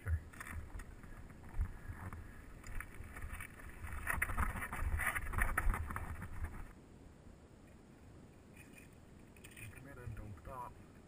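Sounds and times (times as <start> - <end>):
wind rumble on microphone: 0.0 - 6.8
mountain bike rattling over rocks: 0.2 - 6.7.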